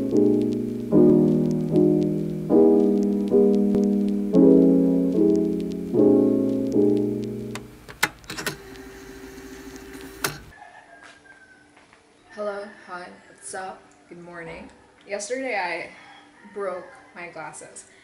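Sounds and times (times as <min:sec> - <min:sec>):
keyboard chords: 0:00.0 - 0:10.5
sharp clicks: 0:00.3 - 0:04.5, 0:05.1 - 0:10.5.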